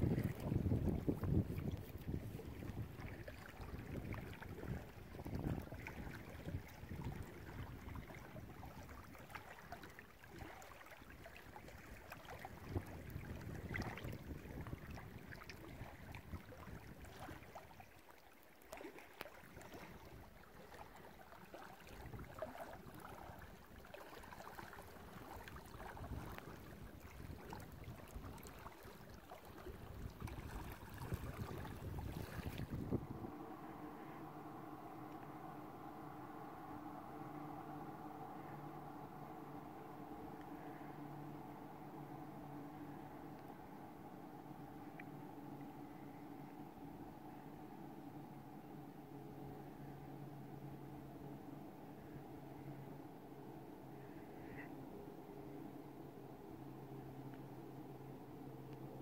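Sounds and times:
wind gusting on microphone: 0.0s - 8.6s, 29.9s - 34.9s
small waves lapping on rocks: 0.0s - 32.9s.

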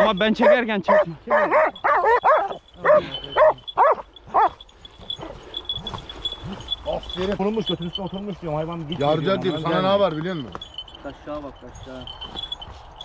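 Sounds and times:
dogs yelping barks: 0.0s - 7.3s
rustling in grass: 1.8s - 9.6s.

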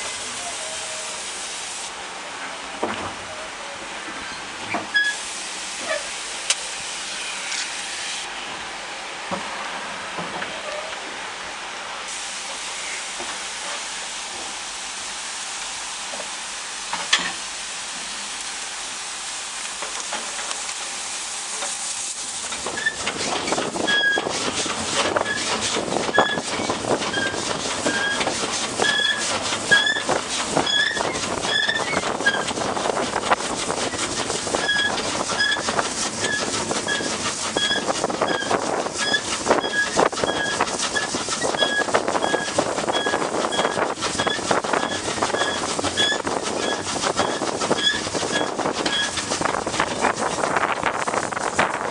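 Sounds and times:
steam locomotive hissing: 0.0s - 51.9s
short high squeak: 4.2s - 5.2s, 23.9s - 24.3s, 34.6s - 49.2s
train clattering on track: 19.7s - 51.9s.

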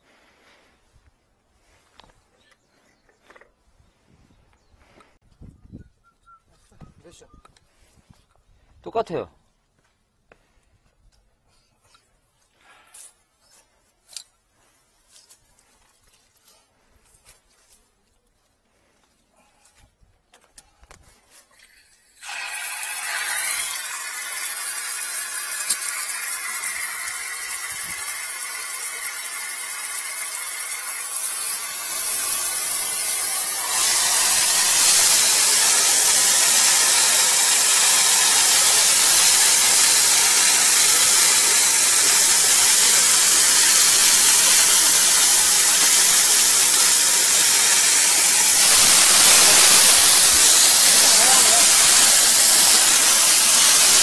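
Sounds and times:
faint whistle: 5.5s - 7.5s
loud steady hiss of pressure: 22.2s - 54.0s.

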